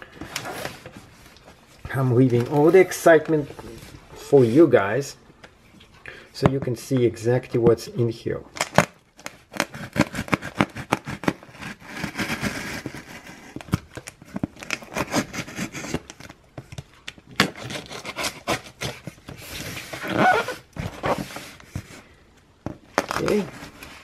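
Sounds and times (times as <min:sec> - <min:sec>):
scissors slicing packing tape: 0:08.6 - 0:13.3.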